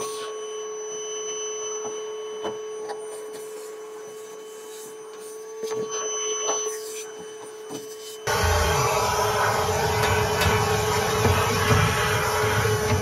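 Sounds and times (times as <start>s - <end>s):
shop vacuum running: 8.2s - 13.0s.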